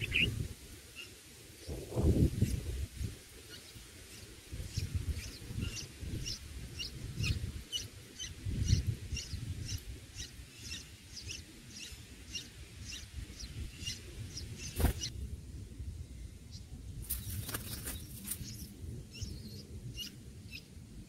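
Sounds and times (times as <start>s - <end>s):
nestlings chirping: 0.0s - 0.3s, 3.5s - 15.1s
low rumbling noise: 13.2s - 17.1s.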